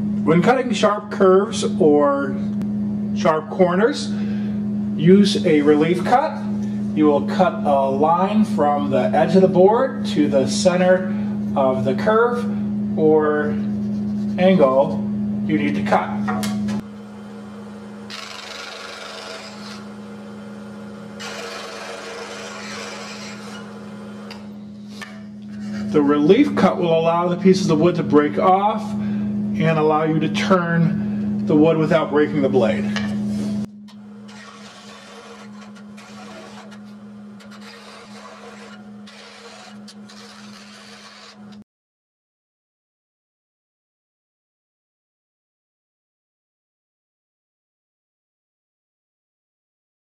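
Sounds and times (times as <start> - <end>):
scroll saw humming: 16.8 - 27.8, 33.4 - 41.6
saw blade rasping through wood: 18.1 - 20.0, 21.2 - 26.0, 34.2 - 41.6.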